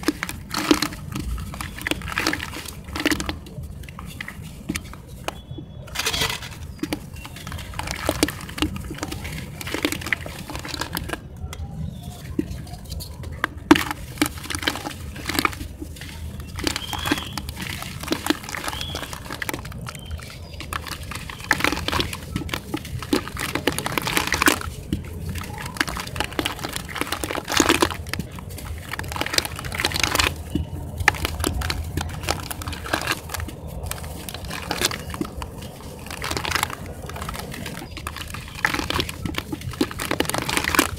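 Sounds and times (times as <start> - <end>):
water squelches and splashes: 0.0 - 40.9
wet block crunching and crackling: 0.0 - 40.9.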